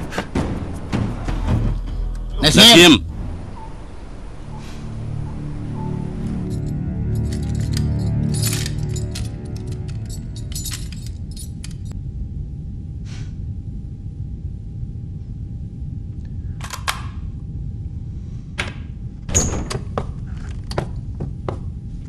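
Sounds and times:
footsteps: 0.0 - 2.3
low steady rumble: 3.0 - 19.3.

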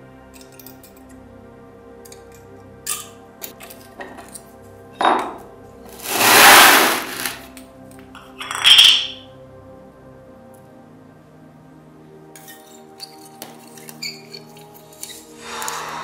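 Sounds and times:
soft background music: 0.0 - 16.0
sheet metal scraping: 6.0 - 7.4.

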